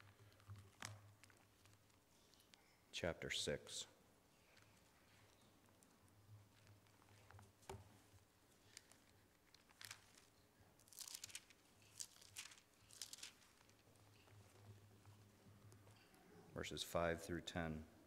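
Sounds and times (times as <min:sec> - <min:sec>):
pages rustling as turned: 0:00.0 - 0:02.5, 0:06.5 - 0:15.3.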